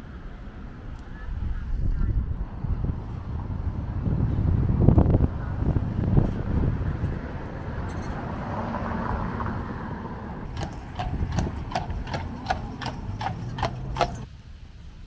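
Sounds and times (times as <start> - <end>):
horse hooves on pavement: 10.4 - 14.3.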